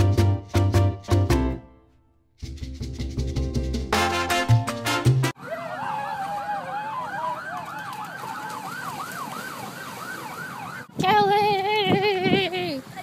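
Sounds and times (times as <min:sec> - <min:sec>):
music with maracas: 0:00.0 - 0:01.6, 0:02.4 - 0:05.3
siren yelping and wailing: 0:05.4 - 0:11.0.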